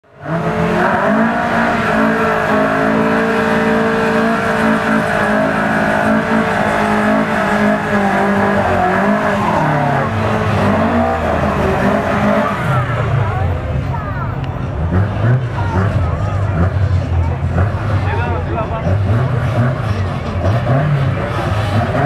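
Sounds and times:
truck engine revving: 0.0 - 22.0
tyres spinning and squealing: 0.1 - 22.0.

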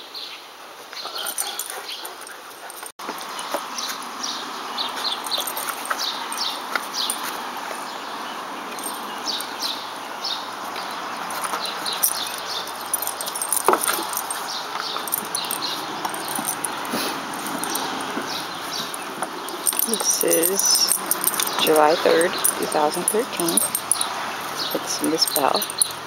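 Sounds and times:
outdoor background noise: 0.0 - 26.0
small birds chirping: 0.2 - 26.0
dogs playing: 0.9 - 8.0, 8.6 - 26.0.

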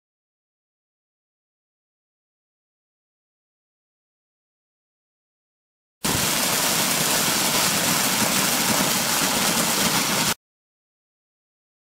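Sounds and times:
corn thresher running: 6.1 - 10.4.

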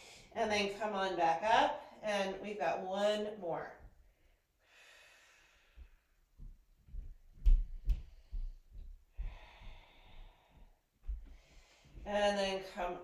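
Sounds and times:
woman breathing slowly: 4.0 - 7.1, 7.7 - 12.1
soft low bumps: 5.8 - 12.3.

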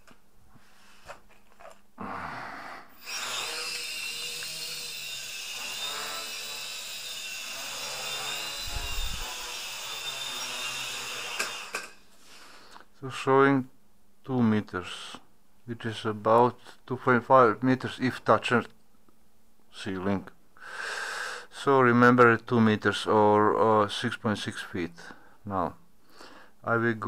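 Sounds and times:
quadcopter motors whining: 3.0 - 11.9.

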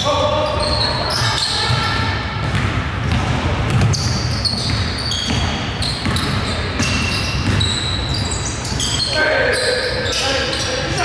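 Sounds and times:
basketball bouncing on gym floor: 1.6 - 8.4
short high squeaks: 3.9 - 11.0.

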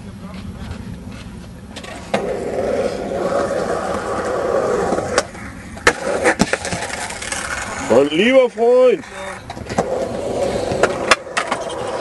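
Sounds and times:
skateboard wheels rolling on concrete: 0.0 - 12.0
skateboard clack: 1.7 - 8.1, 9.3 - 12.0
skateboard landing hit: 5.1 - 7.3.

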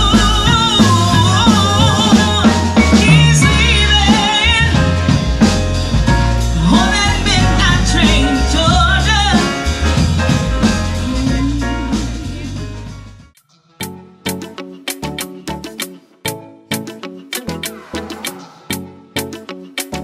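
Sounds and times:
woman singing into a microphone: 0.0 - 5.0, 6.6 - 9.6, 10.9 - 12.8
drum kit: 0.0 - 13.3, 14.3 - 16.0, 16.7 - 20.0
piano: 0.0 - 13.3.

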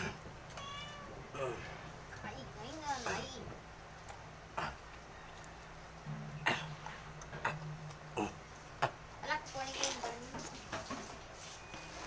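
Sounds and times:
domestic animal crying: 0.0 - 1.8.

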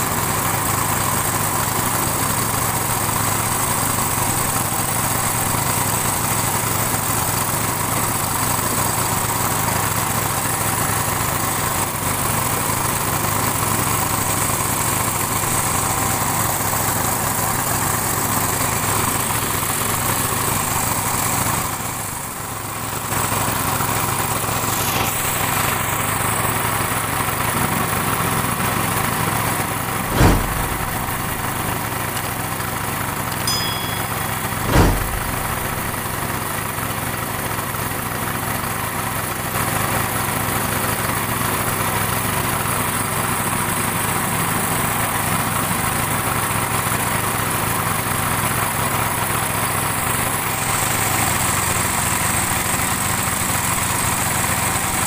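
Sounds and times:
low thump: 30.1 - 32.4, 33.4 - 36.4.

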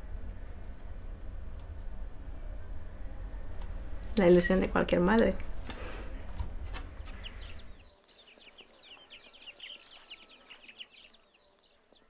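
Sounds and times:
low hum: 0.0 - 8.1
chicks peeping: 5.7 - 12.0.

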